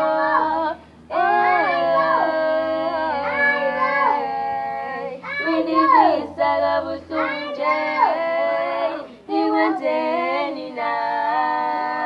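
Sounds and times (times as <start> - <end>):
young women singing unaccompanied: 0.0 - 12.0.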